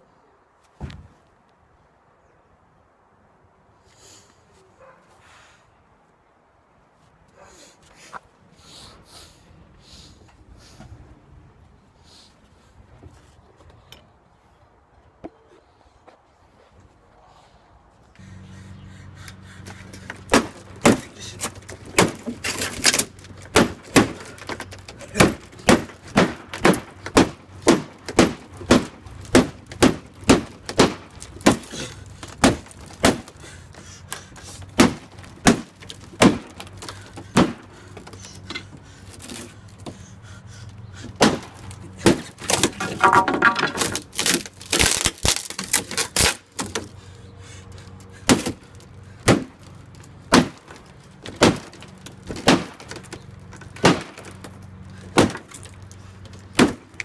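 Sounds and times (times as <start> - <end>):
hammer splintering wooden panel: 20.1 - 33.3, 48.3 - 48.6.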